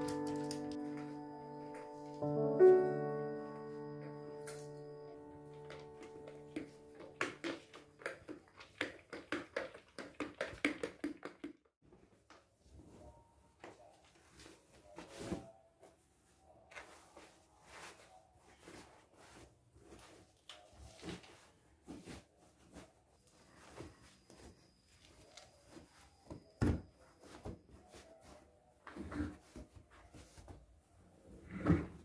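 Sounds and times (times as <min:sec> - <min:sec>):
broom sweeping tiled floor: 0:14.2 - 0:28.5.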